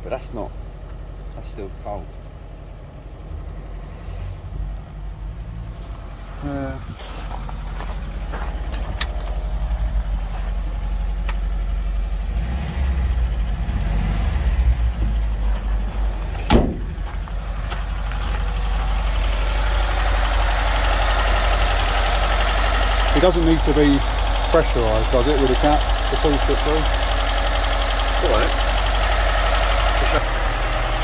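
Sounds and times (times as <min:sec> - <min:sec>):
van engine idling: 0:00.0 - 0:31.0
thump: 0:16.4 - 0:17.0.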